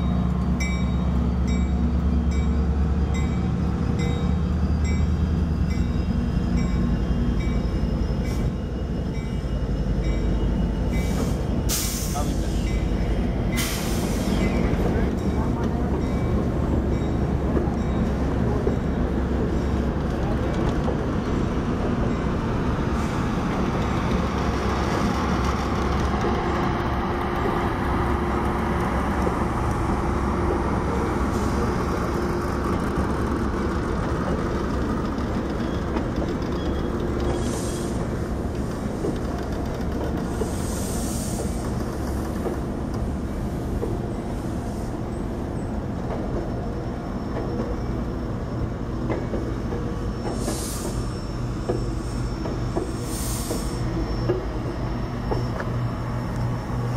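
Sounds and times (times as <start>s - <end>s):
train wheels rumbling on rail: 0.0s - 56.9s.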